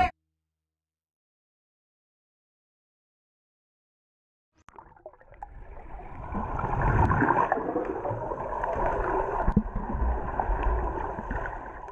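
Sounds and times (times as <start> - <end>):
muffled underwater splashing: 4.7 - 11.9
swimmer moving through water: 4.8 - 11.9.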